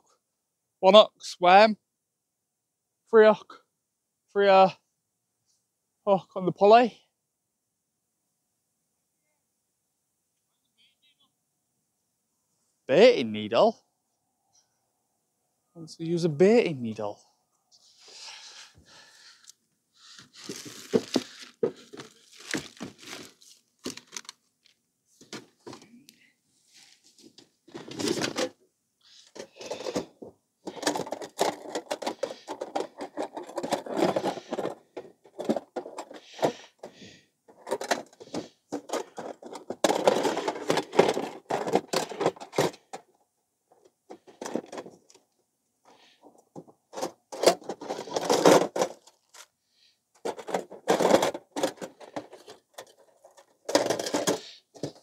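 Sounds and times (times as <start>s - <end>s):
rustling and crinkling of bait: 19.2s - 25.4s, 29.2s - 42.8s.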